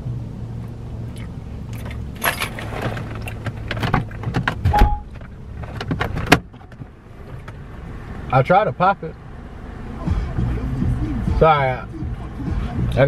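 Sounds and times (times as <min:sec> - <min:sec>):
car engine idling: 0:00.0 - 0:13.0
rustling inside a car: 0:00.6 - 0:08.4
heavy thump: 0:03.8 - 0:05.2
short beep: 0:04.7 - 0:05.1.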